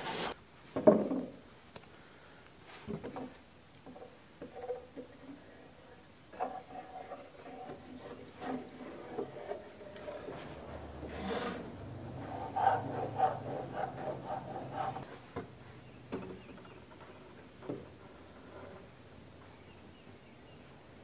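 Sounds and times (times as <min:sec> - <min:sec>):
scraping and rubbing: 0:00.0 - 0:00.4, 0:06.3 - 0:15.4.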